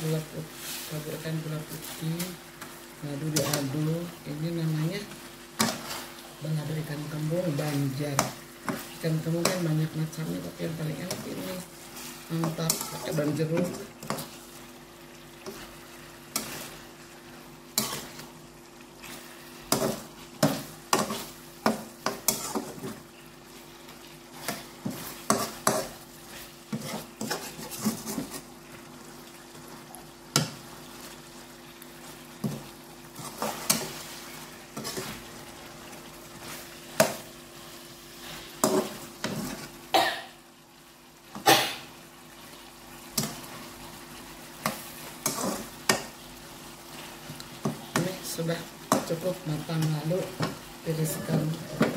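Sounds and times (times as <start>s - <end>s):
frying sizzle: 0.0s - 51.9s
metal spatula scraping a wok: 11.9s - 13.2s, 22.0s - 22.9s, 24.4s - 28.4s, 45.2s - 45.7s.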